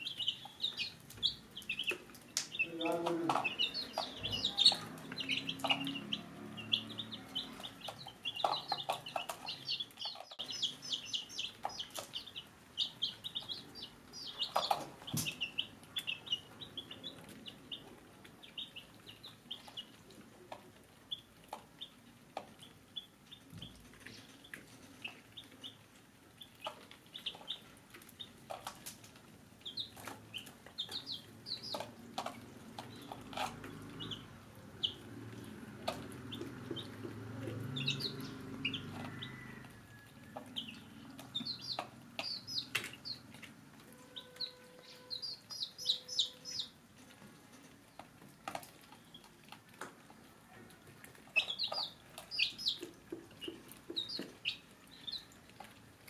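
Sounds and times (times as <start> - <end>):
chicks peeping: 0.0 - 56.0.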